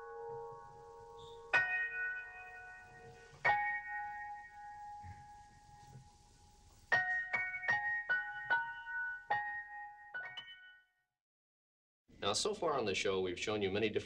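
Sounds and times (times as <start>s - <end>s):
piano chords ringing: 0.0s - 10.9s.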